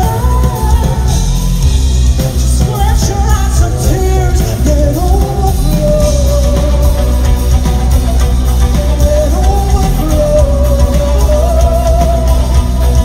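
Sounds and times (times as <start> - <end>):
woman singing: 0.0 - 1.8, 2.4 - 7.9, 8.6 - 13.0
live band playing: 0.0 - 13.0.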